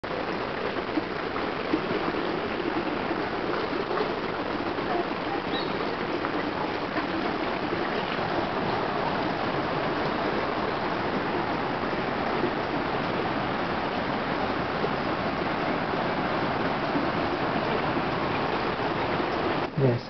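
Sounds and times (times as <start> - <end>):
running water rushing: 0.0 - 20.0
faint high chirp: 5.5 - 5.9.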